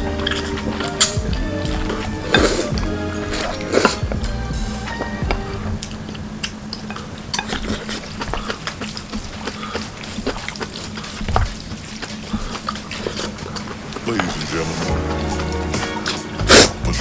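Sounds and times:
chopsticks mixing wet noodles: 0.0 - 16.9.

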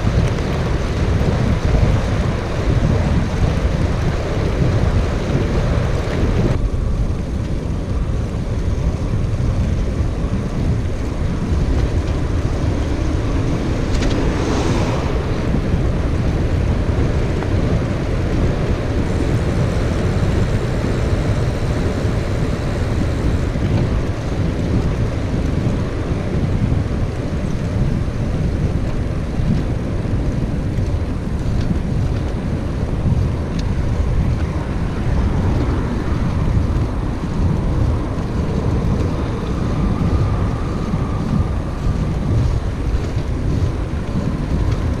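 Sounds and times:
wind buffeting microphone: 0.0 - 45.0
tyres hissing on road: 10.6 - 26.3.

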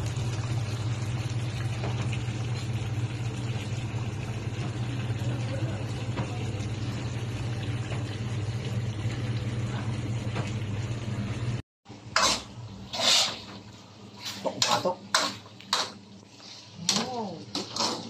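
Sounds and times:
sauce simmering and bubbling: 0.0 - 14.2.

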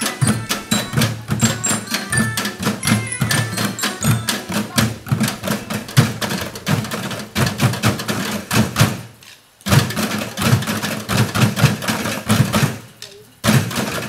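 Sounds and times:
small xylophone: 0.0 - 7.1
junk percussion ensemble: 0.0 - 14.0.

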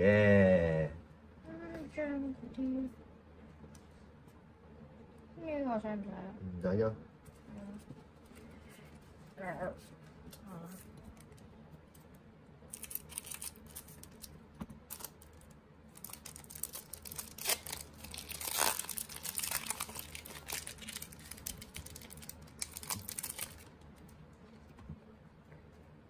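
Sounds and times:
foil wrapper crinkling: 12.7 - 24.2.

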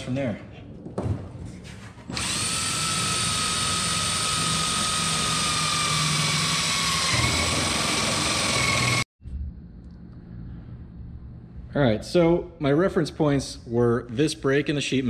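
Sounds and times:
cordless drill driving screw: 2.1 - 9.0.

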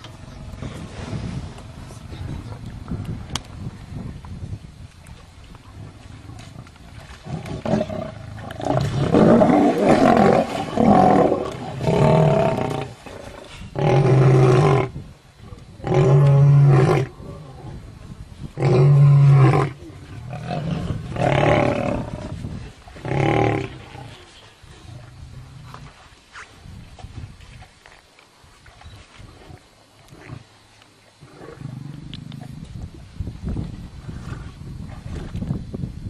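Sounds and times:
lions roaring: 7.2 - 14.9, 15.8 - 17.8, 18.6 - 22.3.

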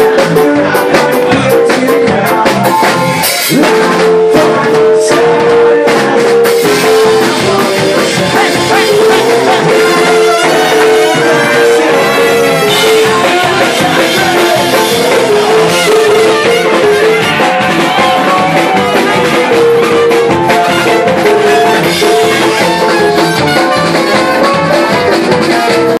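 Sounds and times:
bass guitar: 0.0 - 26.0
drums: 0.0 - 26.0
electric guitar: 0.0 - 26.0
horn section holding notes: 8.2 - 25.8.

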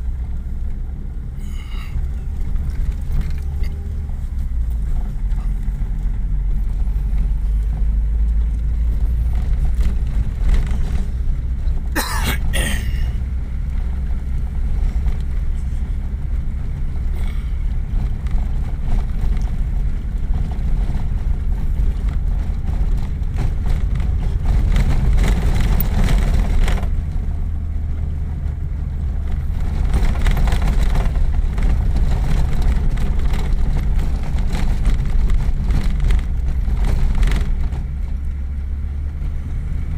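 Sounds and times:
vehicle engine and road rumble: 0.0 - 39.9.

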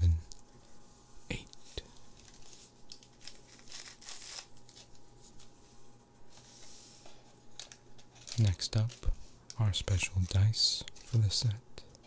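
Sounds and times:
foil packs crinkling: 2.1 - 5.5, 7.5 - 9.2.

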